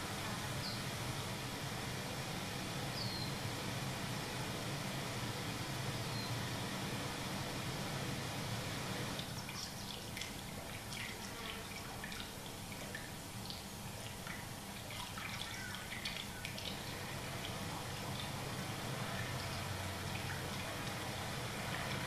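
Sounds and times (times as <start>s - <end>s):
water drips: 9.2s - 18.6s, 19.2s - 22.0s.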